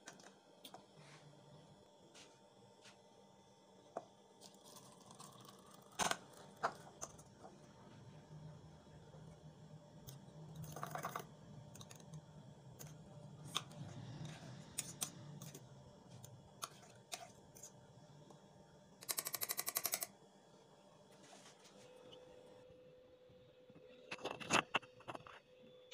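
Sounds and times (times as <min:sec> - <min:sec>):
low steady hum: 0:00.0 - 0:19.3.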